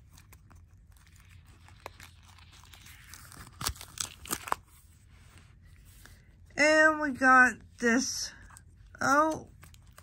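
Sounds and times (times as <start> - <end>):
sharp paper crackles: 0.0 - 4.9
paper pages rustling: 0.0 - 6.3, 8.4 - 10.0.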